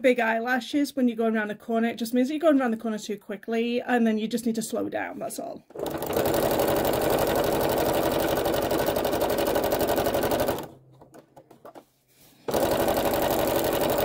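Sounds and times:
sewing machine stitching: 5.7 - 14.0.

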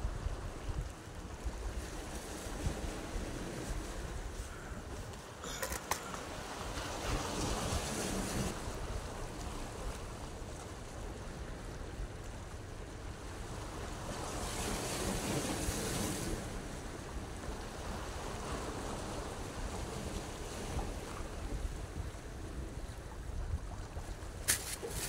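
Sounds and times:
wind rumbling on microphone: 0.0 - 25.0
sea waves washing against rocks: 0.1 - 10.5, 24.2 - 25.0.

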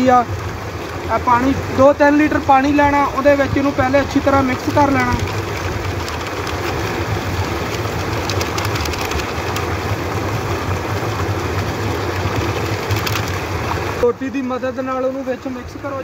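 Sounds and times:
water gushing into tank: 0.0 - 14.0
electric pump motor humming: 3.2 - 14.0
small crinkles and splashes: 3.4 - 10.1, 12.0 - 14.0.

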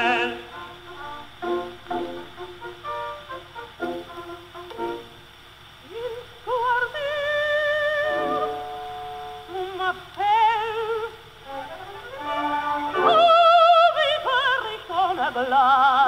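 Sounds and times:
soprano singing opera: 0.0 - 2.2, 5.8 - 16.0
soft accompaniment: 0.0 - 5.3, 7.8 - 15.3.

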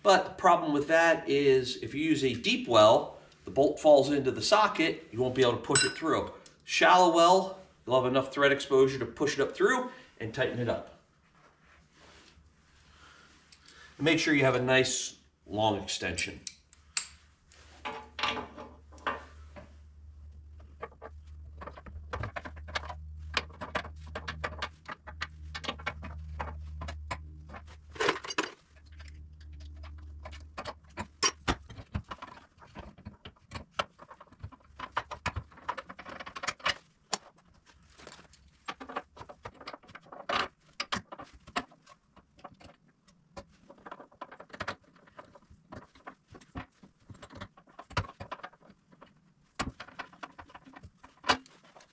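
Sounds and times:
metal clinking: 5.7 - 6.2
low hum: 28.7 - 30.7.

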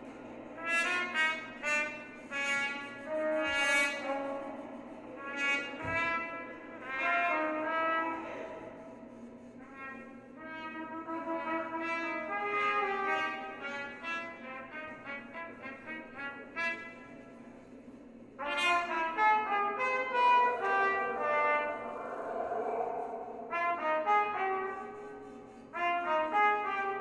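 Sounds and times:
trumpets playing short notes: 0.6 - 8.7, 18.4 - 21.9.

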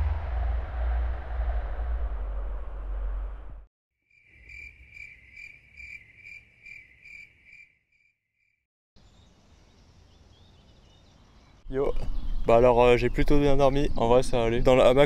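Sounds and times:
loud rushing noise: 0.0 - 3.6
cricket chirping: 4.1 - 8.6.

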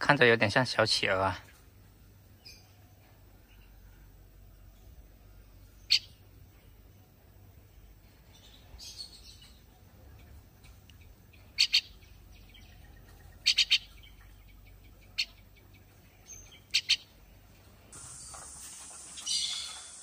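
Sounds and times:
fledgling birds begging calls: 5.8 - 6.3, 11.0 - 20.0.

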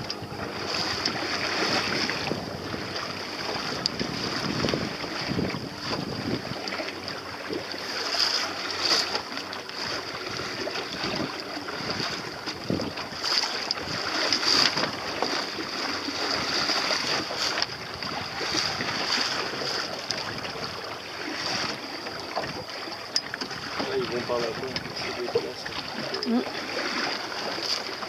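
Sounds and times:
wind buffeting microphone: 0.0 - 7.8, 9.7 - 22.7
water lapping against hull: 0.0 - 28.0.

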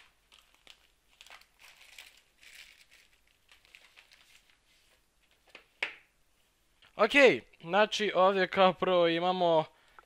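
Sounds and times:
plastic bag crinkling and tearing: 0.0 - 4.6.

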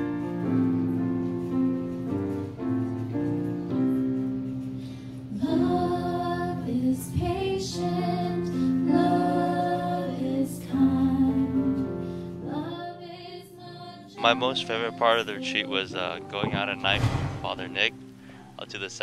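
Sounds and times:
keyboard accompaniment: 0.0 - 19.0
women singing worship song: 5.3 - 17.6.

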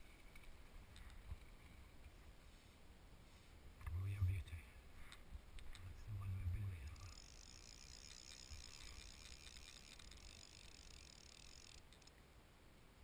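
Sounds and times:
faint low rumble: 0.0 - 9.2.

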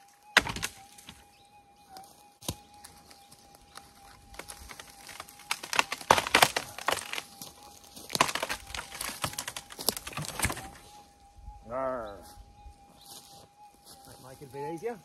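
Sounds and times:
dry wood cracking: 0.0 - 11.6.

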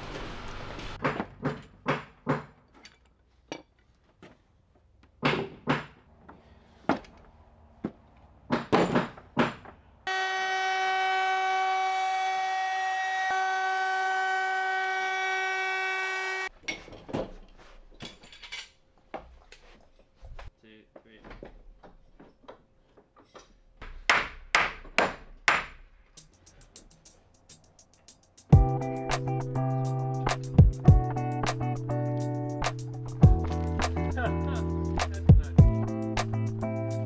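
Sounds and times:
trim router whining: 10.1 - 16.5.

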